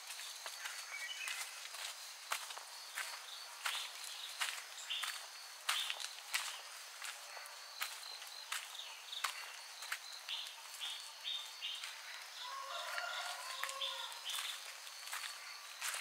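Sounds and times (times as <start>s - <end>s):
crickets trilling: 0.0s - 16.0s
footsteps on a path: 0.0s - 16.0s.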